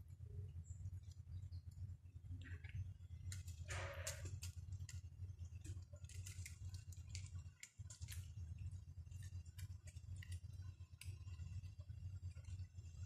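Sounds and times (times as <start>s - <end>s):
steady low hum: 0.0s - 13.0s
claws scratching tree bark: 6.0s - 8.3s.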